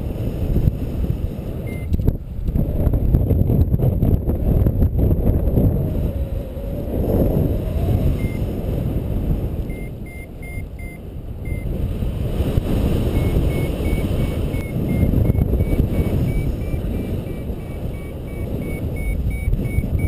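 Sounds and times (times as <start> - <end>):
wind rushing on microphone: 0.0 - 20.0
variometer beeping: 1.6 - 2.0, 8.1 - 8.5, 9.7 - 11.7, 13.1 - 20.0.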